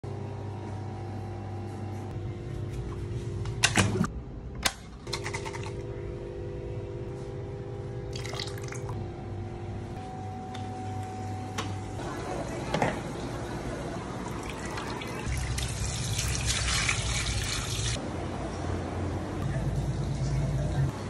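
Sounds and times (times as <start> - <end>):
aquarium equipment hum: 5.6 - 21.0.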